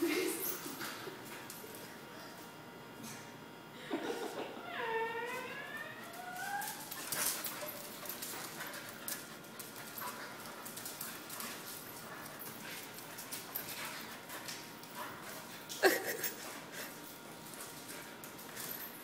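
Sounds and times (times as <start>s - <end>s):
dog whining: 4.5s - 7.8s
paws clicking on concrete: 6.0s - 19.0s.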